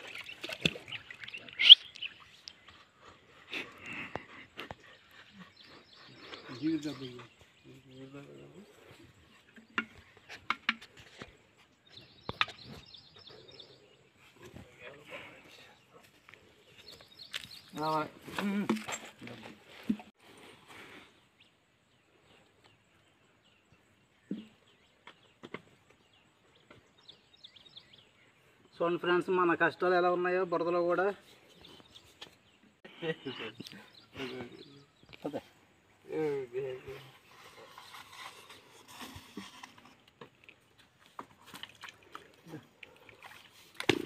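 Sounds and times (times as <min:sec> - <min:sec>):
faint bird chirps: 0:00.0 - 0:03.3, 0:31.2 - 0:39.2.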